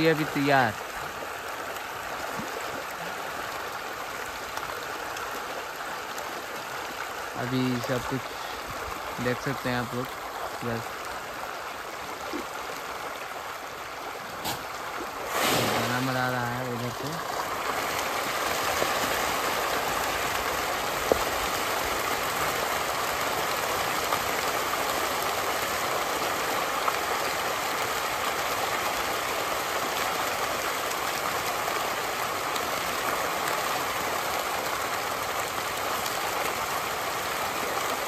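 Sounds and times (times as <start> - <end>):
fish splashing at the surface: 11.7 - 38.0.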